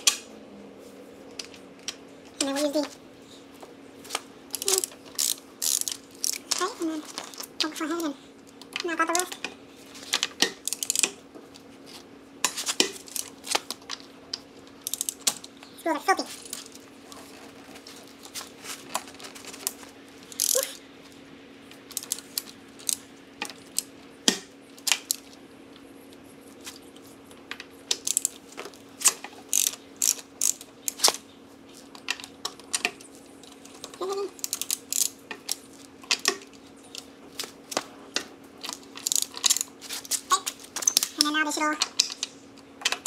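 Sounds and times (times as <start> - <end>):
ratchet wrench clicking: 4.5 - 6.6, 10.6 - 11.2, 14.8 - 15.3, 20.3 - 20.6, 27.9 - 28.4, 29.5 - 31.2, 34.4 - 35.6, 38.6 - 39.7.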